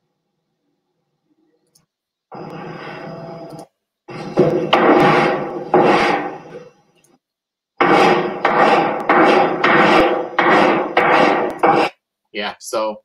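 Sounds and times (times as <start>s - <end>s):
chalk scraping on drywall: 2.4s - 3.4s, 4.1s - 6.7s, 7.8s - 12.0s.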